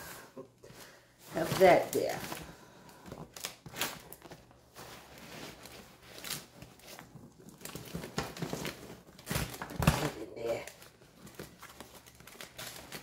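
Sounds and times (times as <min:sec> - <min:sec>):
fabric rustling and crinkling: 0:00.7 - 0:13.0.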